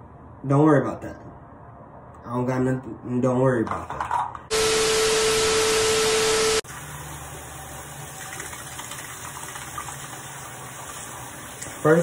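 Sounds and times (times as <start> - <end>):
loud water rush with whistle: 4.5 - 6.6
sink faucet running: 6.6 - 12.0.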